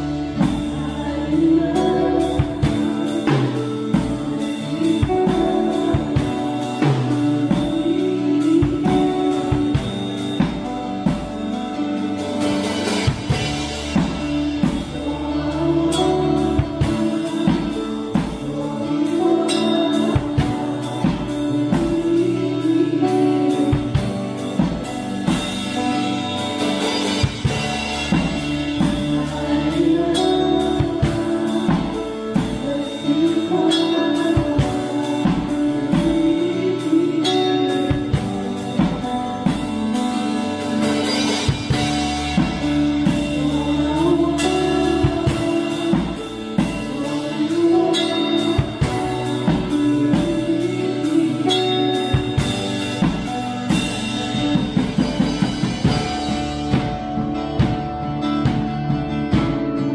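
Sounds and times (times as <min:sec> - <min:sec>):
man singing: 0:00.0 - 0:10.5, 0:14.8 - 0:24.5, 0:28.8 - 0:40.5, 0:43.0 - 0:53.0
drum kit beat: 0:00.0 - 0:59.9
keyboard: 0:00.0 - 0:59.9
strummed acoustic guitar: 0:00.0 - 0:59.9.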